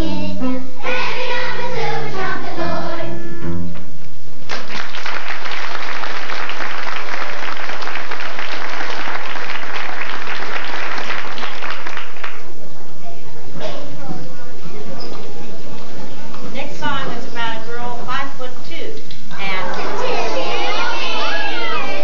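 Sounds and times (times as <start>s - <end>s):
children's choir singing: 0.0s - 3.6s, 19.6s - 22.0s
audience applauding: 4.5s - 12.5s, 19.4s - 22.0s.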